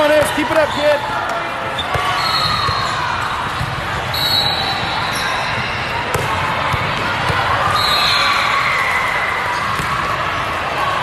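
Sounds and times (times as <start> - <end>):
crowd chatter: 0.0 - 11.0
ball bouncing on court floor: 6.0 - 7.5, 9.6 - 10.1.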